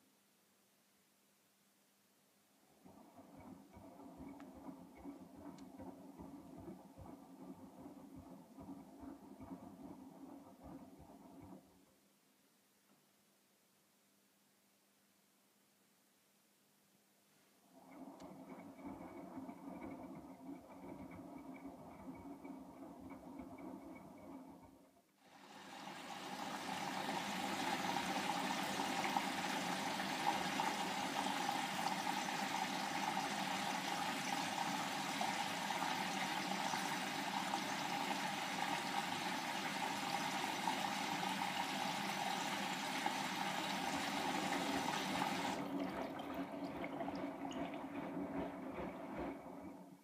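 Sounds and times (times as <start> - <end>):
water rushing into washing machine: 25.3 - 50.0.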